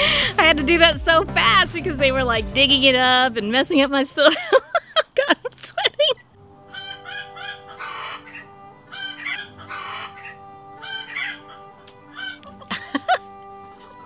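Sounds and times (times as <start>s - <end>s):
soft background music: 0.0s - 4.6s, 6.4s - 14.0s.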